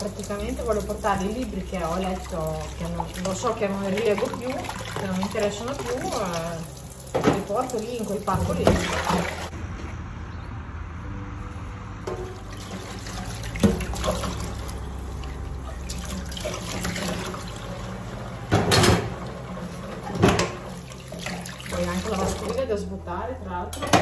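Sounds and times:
pots and pans clattering: 0:18.4 - 0:21.4.

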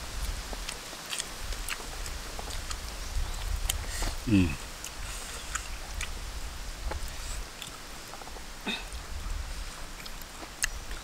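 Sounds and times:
chewing and lip smacks: 0:00.5 - 0:04.2, 0:04.8 - 0:06.2, 0:10.0 - 0:11.0.

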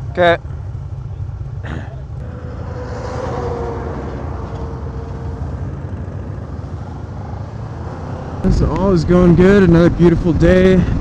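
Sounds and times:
motorcycle engine pulling away: 0:01.6 - 0:08.5.

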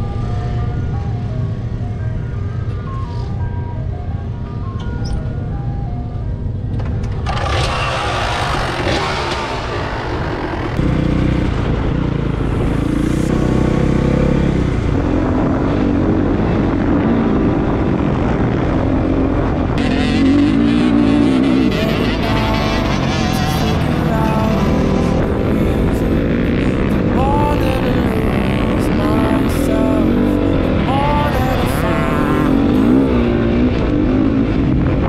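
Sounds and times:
dirt bike engine revving: 0:07.2 - 0:35.0.

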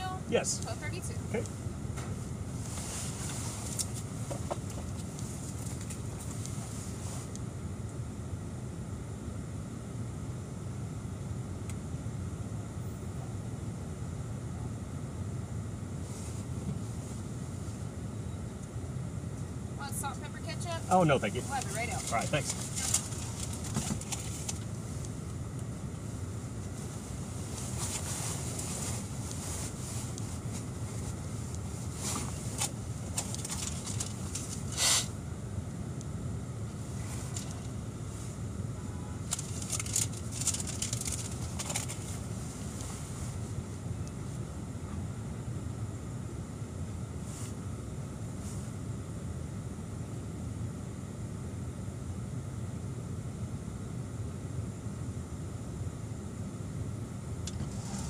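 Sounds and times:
rustles and clicks of handling: 0:01.4 - 0:07.5, 0:21.4 - 0:35.1, 0:36.7 - 0:38.4, 0:39.2 - 0:44.4
car engine idling: 0:19.2 - 0:35.0.

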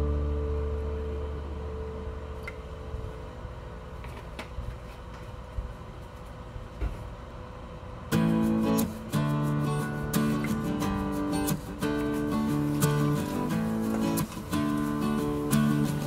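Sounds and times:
guitar music: 0:00.0 - 0:03.0, 0:08.1 - 0:16.0
low background rumble: 0:00.0 - 0:04.0.

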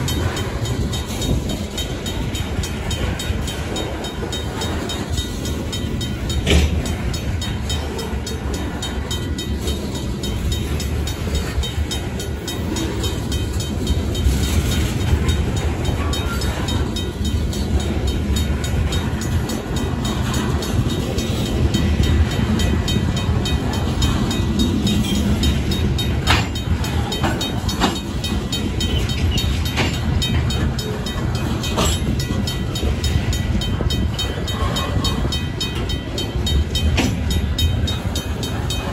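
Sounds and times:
steel wheels rumbling on rails: 0:00.0 - 0:38.9
sharp metal clanks: 0:06.2 - 0:07.1.

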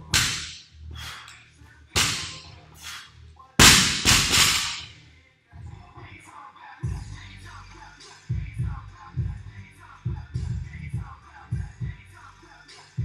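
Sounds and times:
barbell dropped with bang: 0:00.0 - 0:00.6, 0:02.0 - 0:02.4, 0:03.6 - 0:04.9
barbell striking gym floor: 0:00.0 - 0:00.6, 0:02.0 - 0:02.5, 0:03.6 - 0:04.9.

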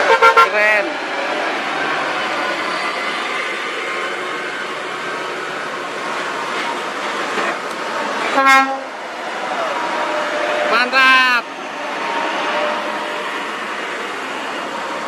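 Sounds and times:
loud horn blast: 0:00.0 - 0:00.7, 0:08.3 - 0:08.9, 0:09.8 - 0:11.1, 0:12.3 - 0:13.6
truck diesel engine pulling: 0:00.0 - 0:15.0
tyre and road noise: 0:00.0 - 0:15.0.

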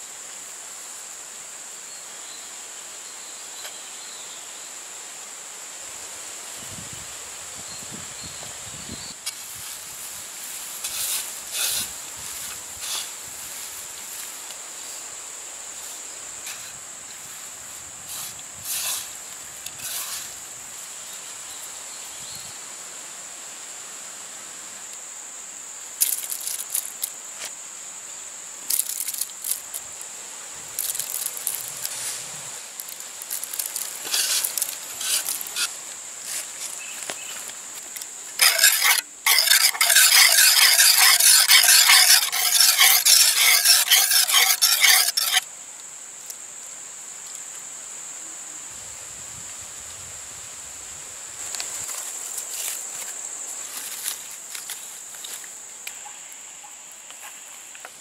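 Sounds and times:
whisk beating in clay pot: 0:38.4 - 0:45.4.

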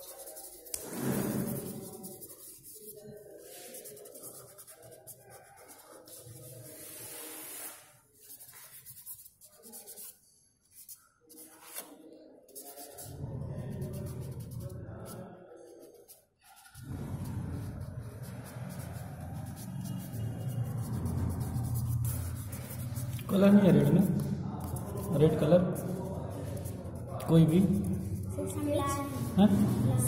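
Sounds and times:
charcoal scratching on paper: 0:00.0 - 0:11.9, 0:12.5 - 0:29.8.

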